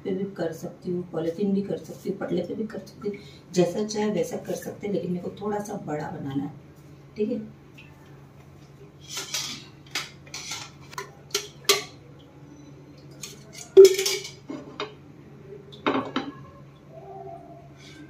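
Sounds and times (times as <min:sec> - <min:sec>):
kitchen utensils and dishes clinking: 0:09.0 - 0:12.0, 0:13.1 - 0:15.0.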